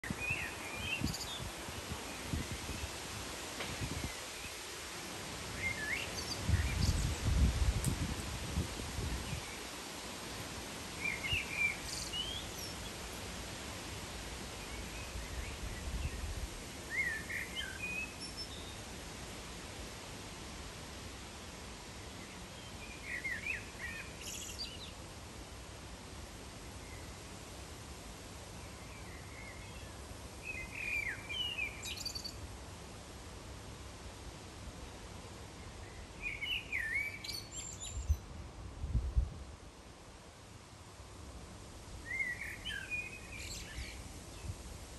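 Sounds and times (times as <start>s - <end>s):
steady outdoor hiss: 0.0s - 44.9s.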